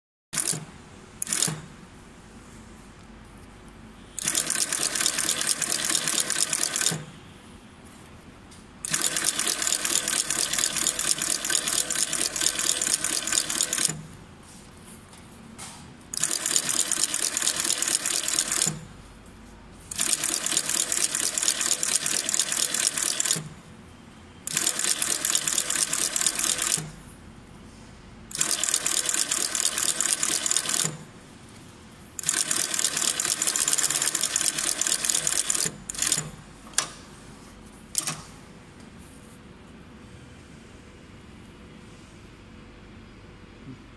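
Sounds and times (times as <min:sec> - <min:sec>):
sewing machine stitching leather: 0:00.4 - 0:01.7, 0:04.2 - 0:07.1, 0:08.8 - 0:14.0, 0:16.1 - 0:18.8, 0:19.9 - 0:23.5, 0:24.5 - 0:27.0, 0:28.3 - 0:31.0, 0:32.2 - 0:36.4.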